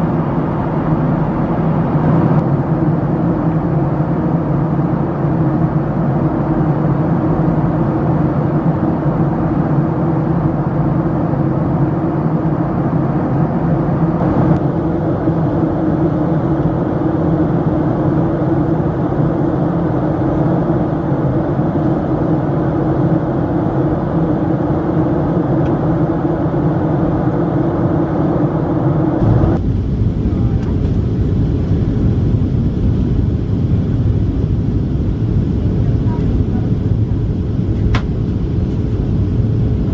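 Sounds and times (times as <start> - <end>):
jet engine drone: 0.0 - 39.9
rush of air: 26.9 - 33.7.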